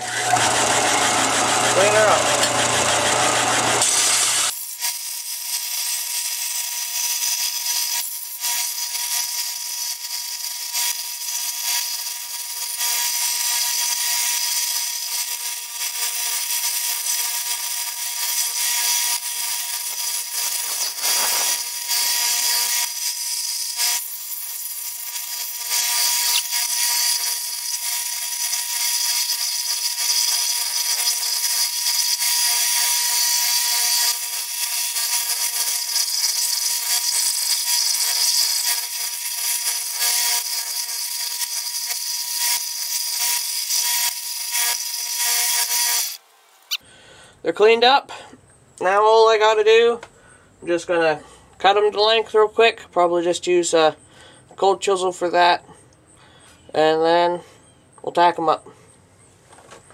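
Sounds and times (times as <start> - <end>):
motor hum: 0.0 - 4.5
belt sander grinding metal: 0.0 - 46.8.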